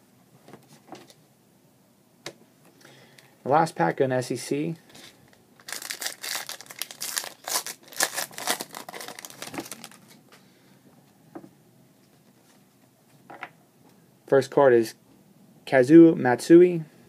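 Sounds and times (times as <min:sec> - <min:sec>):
foil wrapper crinkling: 0:04.9 - 0:10.2.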